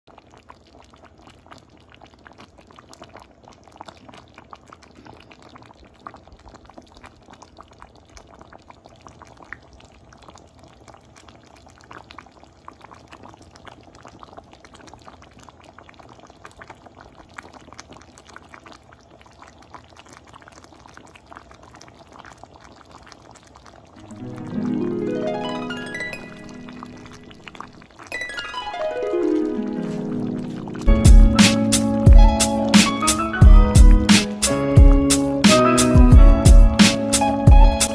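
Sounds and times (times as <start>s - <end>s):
sauce bubbling in a pan: 0.1s - 24.8s, 25.5s - 28.7s, 29.3s - 35.4s, 36.0s - 37.9s
plucked-string music: 24.0s - 37.9s.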